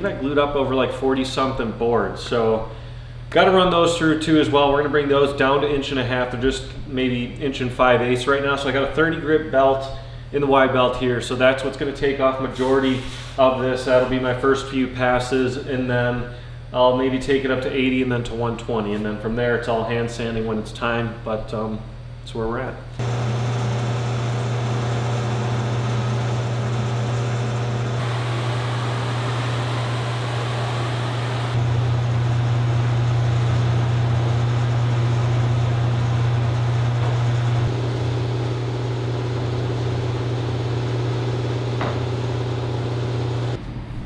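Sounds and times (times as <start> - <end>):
belt sander running: 23.0 - 43.6.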